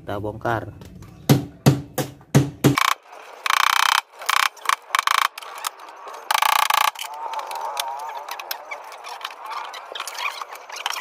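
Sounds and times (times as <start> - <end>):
screwdriver ratchet clicking: 2.8 - 5.7, 6.3 - 7.1.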